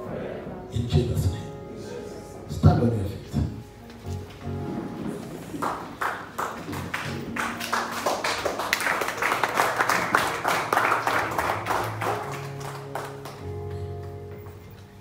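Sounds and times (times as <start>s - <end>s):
soft church band music: 0.0s - 15.0s
congregation clapping: 5.3s - 14.2s.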